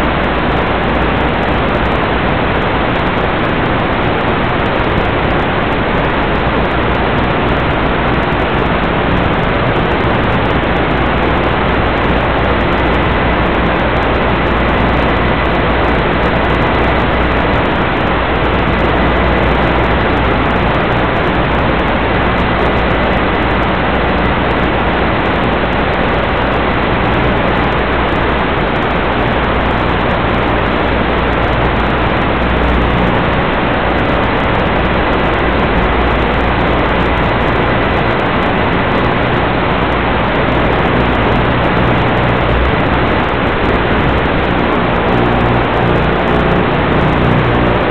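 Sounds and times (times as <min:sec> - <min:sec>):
loud static hiss: 0:00.0 - 0:47.9.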